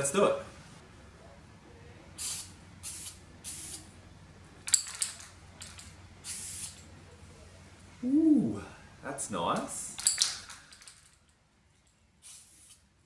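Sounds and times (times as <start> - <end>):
spray can hissing: 2.2 - 3.9, 6.2 - 6.8, 12.2 - 12.9.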